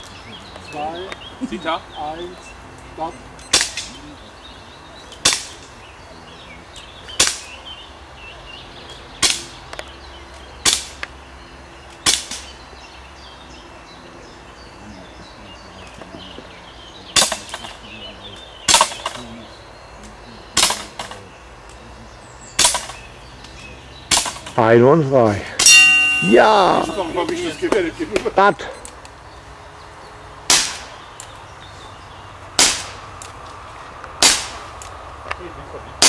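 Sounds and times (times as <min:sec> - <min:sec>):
rifle shots: 0:34.2 - 0:34.6.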